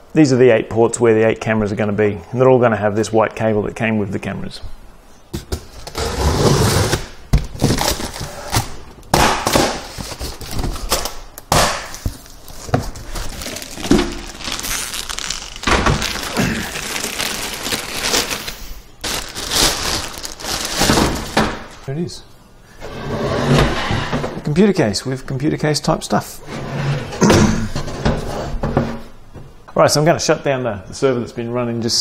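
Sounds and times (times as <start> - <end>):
plastic bag crinkling: 12.1 - 21.7.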